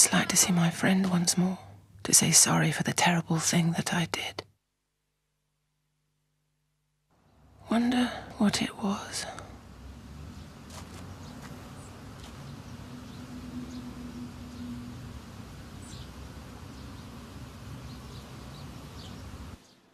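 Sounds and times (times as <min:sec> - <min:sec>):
steady low hum: 0:00.0 - 0:19.6.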